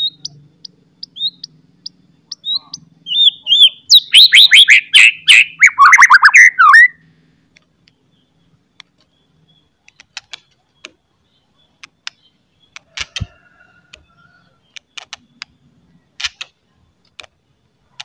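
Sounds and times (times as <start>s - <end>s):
bird singing sharp high notes: 2.3s - 7.0s.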